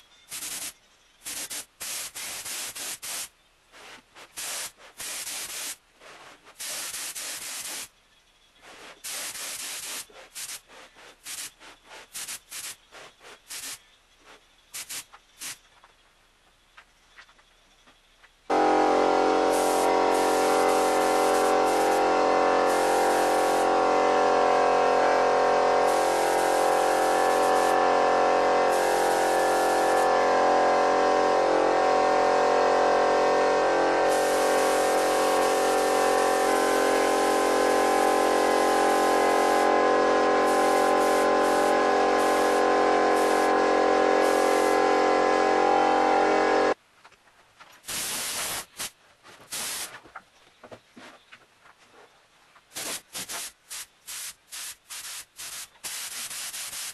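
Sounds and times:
paint sprayer motor whine: 18.5s - 46.8s.

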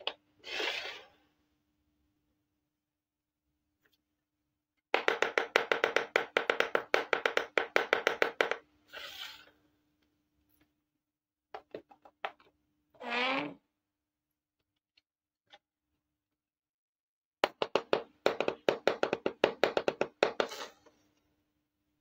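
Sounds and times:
brief scrape: 0.4s - 1.2s, 8.9s - 9.5s, 20.5s - 21.0s
rapid tapping on plastic toys: 4.9s - 8.6s, 17.4s - 20.5s.

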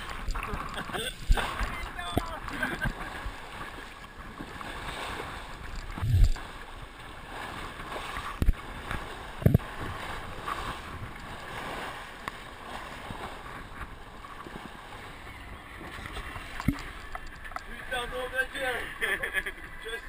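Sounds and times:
wind buffeting microphone: 0.0s - 12.1s
boat hull thumping on waves: 0.0s - 14.8s
water rushing along a hull: 0.0s - 20.0s.

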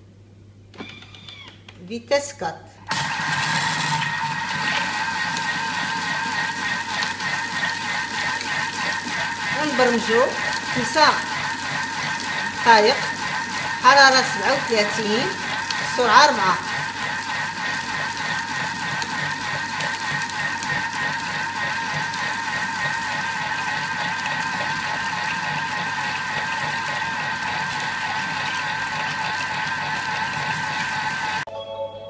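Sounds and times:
food processor motor whine: 2.9s - 31.5s.

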